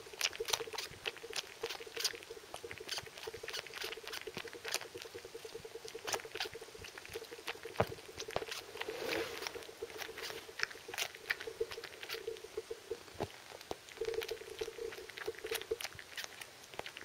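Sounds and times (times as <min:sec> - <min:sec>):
cat sucking and smacking: 0:00.0 - 0:17.0.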